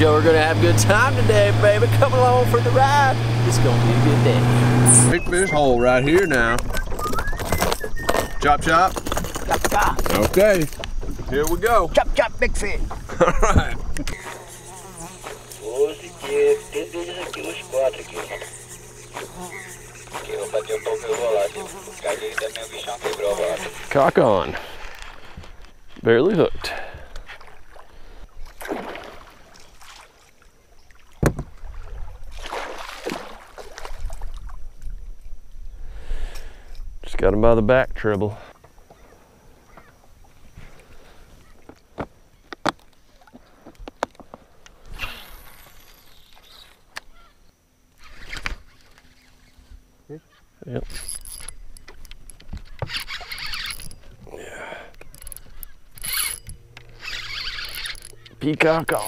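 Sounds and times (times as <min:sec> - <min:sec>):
fishing reel gears whirring: 0:00.2 - 0:11.9, 0:13.1 - 0:25.9, 0:44.8 - 0:47.0, 0:50.8 - 0:59.0
fish thrashing in water: 0:31.7 - 0:34.5.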